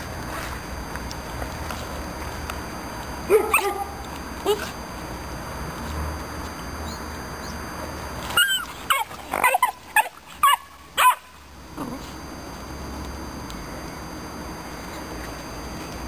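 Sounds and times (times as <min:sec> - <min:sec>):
puppy yelping and barking: 0:03.3 - 0:04.7, 0:08.2 - 0:11.4.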